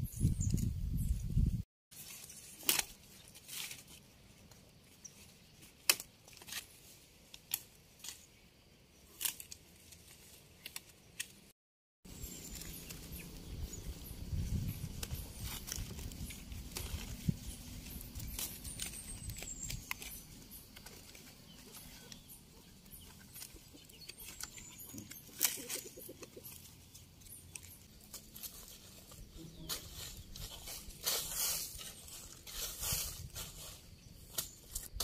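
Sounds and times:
dry leaves and twigs crackling: 0:01.9 - 0:11.5, 0:12.1 - 0:35.0
low wind rumble: 0:13.3 - 0:18.4
chickens calling: 0:17.6 - 0:27.8.

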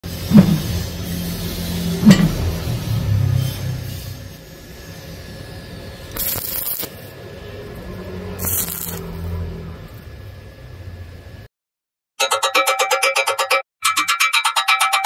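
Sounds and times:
welding arc crackling: 0:00.1 - 0:10.2.

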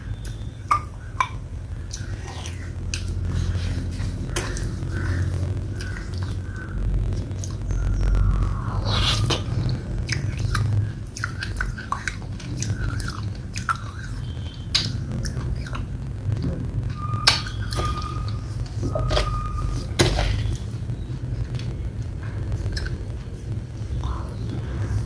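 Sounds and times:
sticky chewing and lip smacks: 0:08.9 - 0:15.9.

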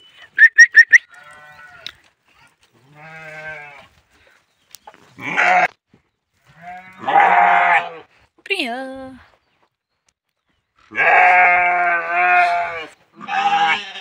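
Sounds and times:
sheep bleating: 0:01.1 - 0:01.9, 0:02.8 - 0:04.0, 0:05.2 - 0:05.7, 0:06.5 - 0:08.1, 0:10.9 - 0:14.0.

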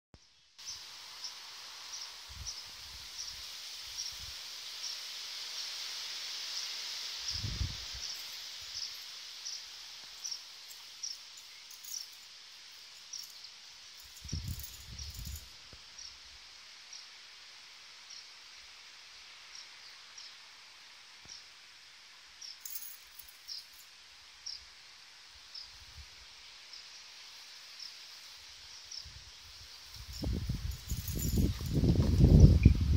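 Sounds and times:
steady high hiss: 0:00.2 - 0:32.9
small bird chirping: 0:06.6 - 0:16.2.

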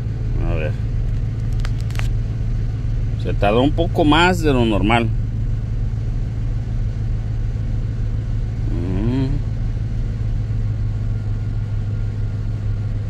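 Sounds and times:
pickup engine idling: 0:00.0 - 0:13.0
brief vocal sound: 0:08.7 - 0:09.5.

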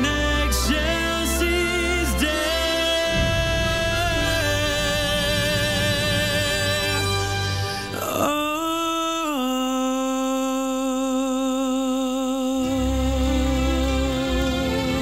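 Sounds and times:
deep low accompaniment: 0:00.0 - 0:08.6
soft accompaniment: 0:00.0 - 0:09.6
man singing a long note: 0:00.0 - 0:15.0.

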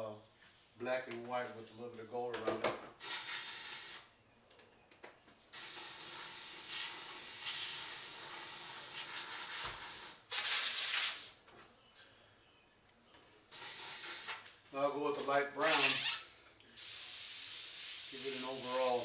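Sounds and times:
airbrush hissing: 0:03.0 - 0:04.1, 0:05.5 - 0:11.4, 0:13.5 - 0:14.4, 0:15.6 - 0:19.0.

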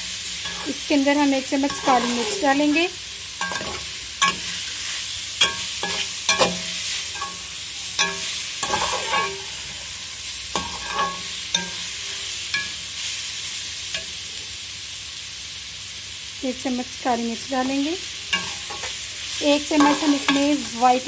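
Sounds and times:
vegetables sizzling in oil: 0:00.0 - 0:21.0
metal spatula scraping pan: 0:00.3 - 0:09.9, 0:10.5 - 0:12.8, 0:18.3 - 0:20.9.

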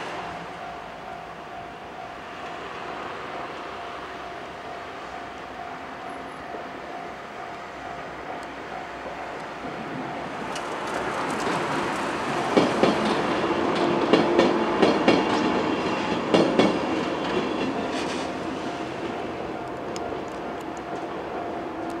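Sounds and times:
level crossing warning bell: 0:00.5 - 0:02.3, 0:03.3 - 0:10.6
wheels clacking over rail joints: 0:08.4 - 0:22.0.

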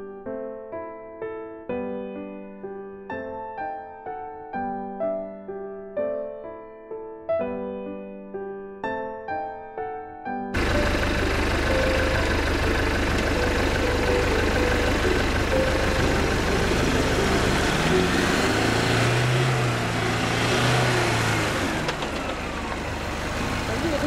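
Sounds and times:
truck engine pulling under load: 0:10.6 - 0:24.0.

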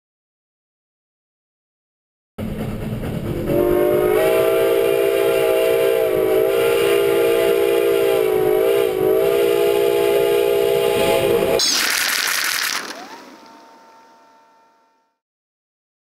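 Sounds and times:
steam chime whistle: 0:12.8 - 0:15.1.

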